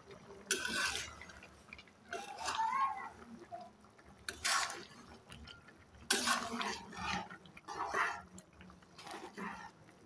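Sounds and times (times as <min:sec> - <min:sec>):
utensil scraping metal pan: 0:06.1 - 0:08.2.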